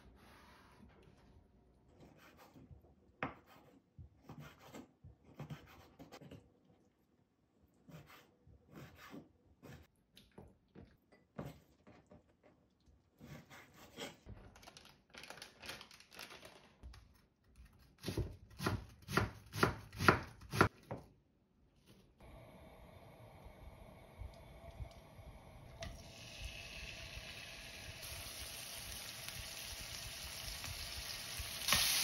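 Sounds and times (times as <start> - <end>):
plastic bag rustling: 14.4 - 16.9.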